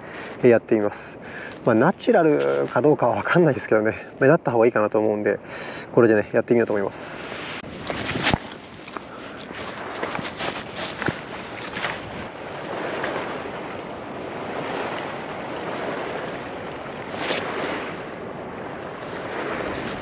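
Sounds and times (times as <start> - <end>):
sea waves washing: 0.0 - 6.0, 6.6 - 20.0
wind buffeting microphone: 6.8 - 20.0.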